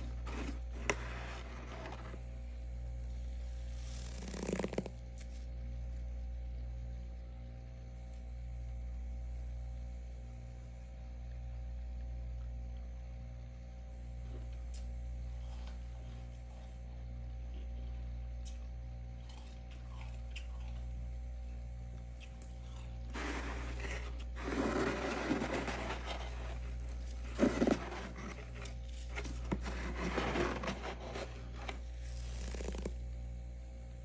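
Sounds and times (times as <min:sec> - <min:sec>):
steady low hum: 0:00.0 - 0:34.0
frost being scraped: 0:22.7 - 0:33.0.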